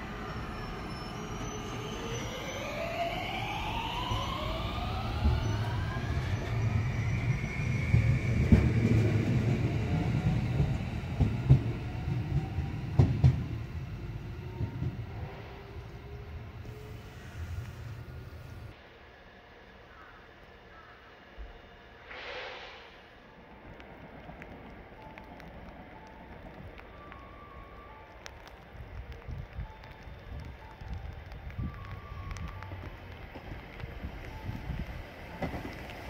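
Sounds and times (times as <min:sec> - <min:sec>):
train cars rumbling past: 0:00.0 - 0:19.4
electric train motor whine: 0:00.0 - 0:19.6.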